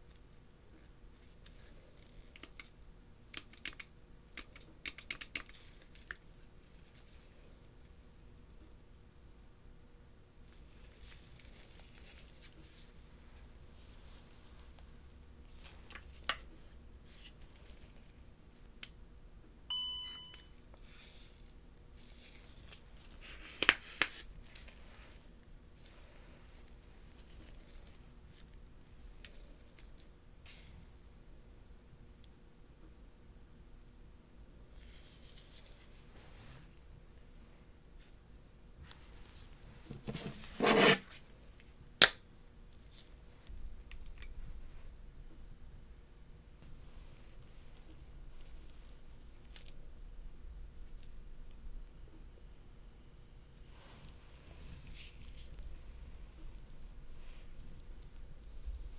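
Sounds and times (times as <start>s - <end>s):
faint handling noise: 10.4s - 19.0s, 20.1s - 30.7s, 34.7s - 38.2s, 38.8s - 41.8s
electronic chime: 19.7s - 20.5s
gloved hands rubbing scrape: 40.1s - 41.2s.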